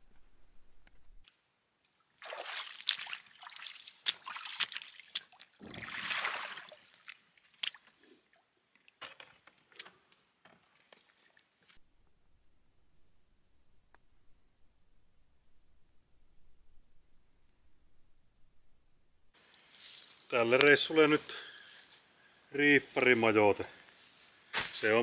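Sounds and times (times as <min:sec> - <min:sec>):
water sloshing and splashing: 0:02.1 - 0:09.9, 0:10.6 - 0:11.8
water drips: 0:02.2 - 0:09.0.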